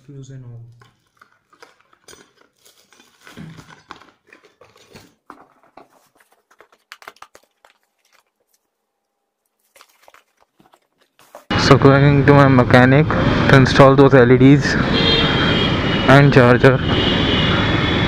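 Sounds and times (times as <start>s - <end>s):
plastic packaging crinkling: 0.1s - 11.5s.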